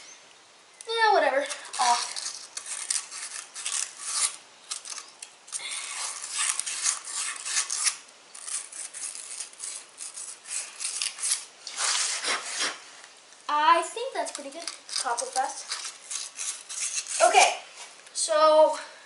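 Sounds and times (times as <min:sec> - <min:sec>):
sandpaper scrubbing metal: 0:01.7 - 0:05.0, 0:05.9 - 0:12.8, 0:14.4 - 0:17.6.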